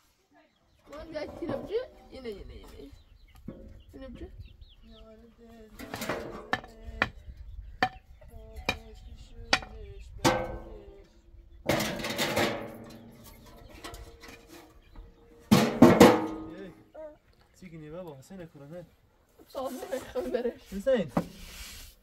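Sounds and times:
metal tray clanking: 1.0s - 2.3s, 5.8s - 6.7s, 9.6s - 10.8s, 11.6s - 16.7s
metal tray rattling: 5.8s - 6.7s, 11.7s - 14.9s, 15.5s - 16.6s.

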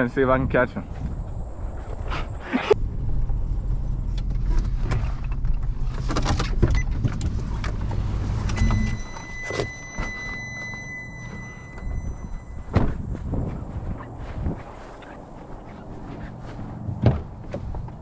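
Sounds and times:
truck engine rumbling: 1.0s - 18.0s
high electronic beep: 8.6s - 12.8s
truck door clicks and knocks: 16.9s - 18.0s.

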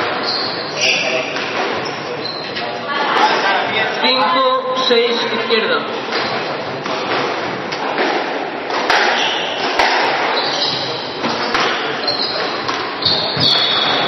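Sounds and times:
shoes squeaking on wooden floor: 0.0s - 2.8s, 9.1s - 14.0s
squash ball struck by rackets: 6.1s - 14.0s.

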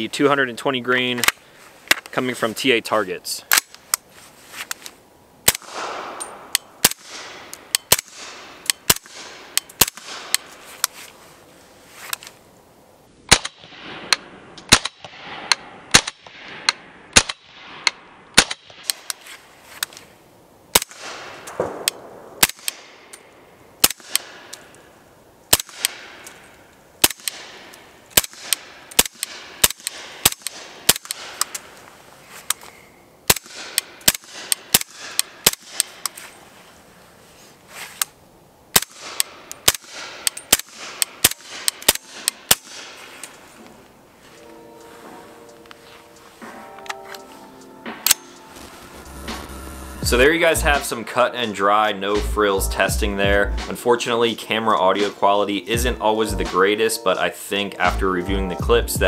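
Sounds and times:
suppressed rifle shots: 5.4s - 10.5s, 13.3s - 19.2s, 20.7s - 23.2s, 23.8s - 24.7s, 25.5s - 26.4s, 27.0s - 31.6s, 33.3s - 36.1s, 38.7s - 43.0s
gunshot echoes: 5.5s - 10.3s, 20.8s - 23.0s.

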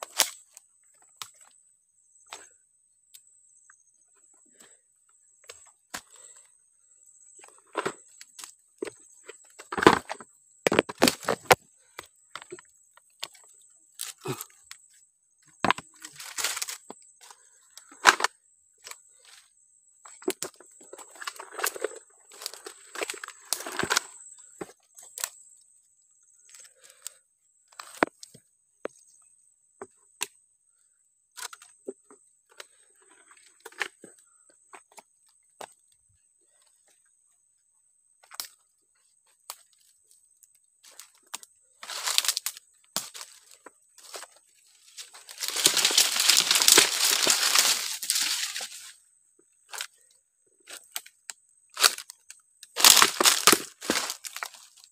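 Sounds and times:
twigs cracking underfoot: 0.0s - 1.5s, 7.4s - 14.8s, 15.6s - 19.3s, 20.0s - 25.4s, 40.8s - 49.0s, 50.6s - 54.9s.

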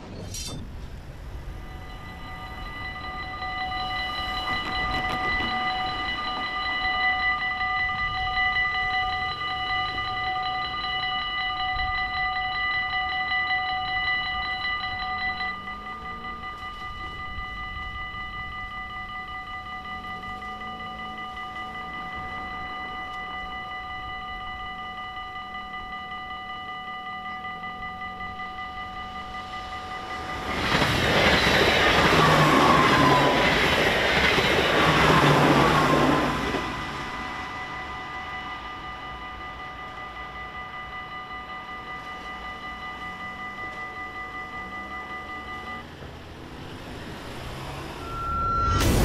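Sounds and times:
level-crossing warning bells ringing: 0.0s - 49.0s
car driving past: 46.1s - 49.0s.

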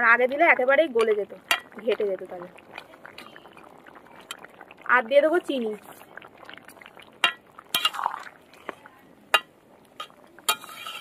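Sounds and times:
metal spatula clinking on pan: 9.3s - 11.0s.

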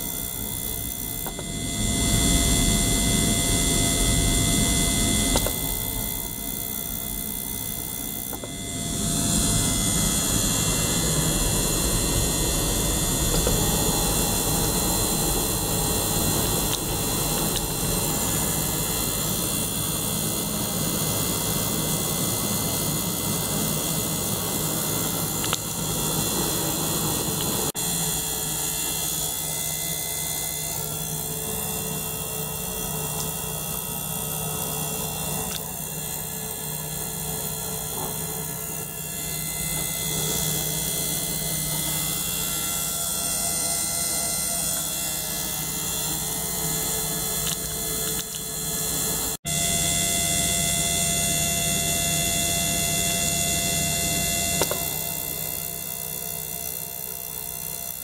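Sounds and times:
pump whirring and humming: 0.0s - 58.0s
sharp click: 54.6s - 54.9s.

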